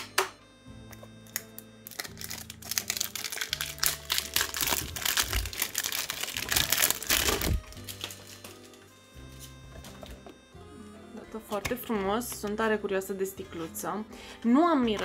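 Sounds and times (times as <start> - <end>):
cellophane crinkling: 1.2 - 8.8.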